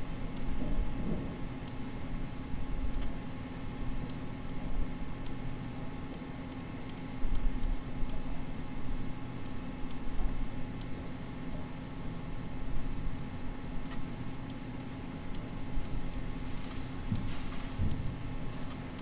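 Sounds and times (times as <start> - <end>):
low hum and hiss: 0.0 - 19.0
computer mouse clicking: 2.9 - 3.2, 6.1 - 8.2, 13.8 - 16.8, 18.6 - 19.0.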